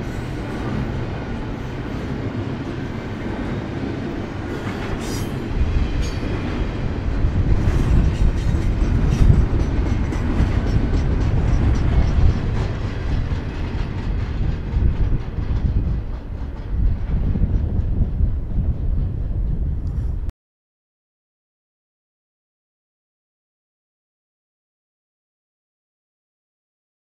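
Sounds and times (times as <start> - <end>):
freight train wheels rumbling: 0.0 - 20.3.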